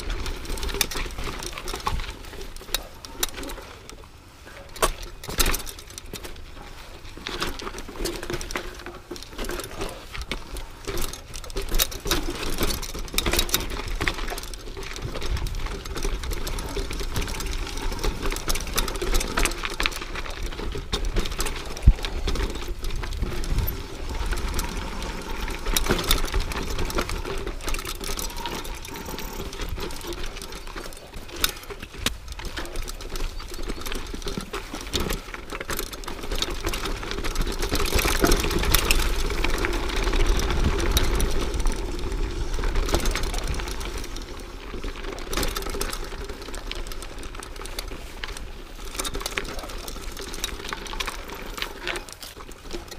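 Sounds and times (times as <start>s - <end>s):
bike frame clattering: 0.0s - 52.9s
bike tyres on loose dirt: 0.0s - 52.9s
wind rumbling on microphone: 13.7s - 30.2s, 37.2s - 45.1s.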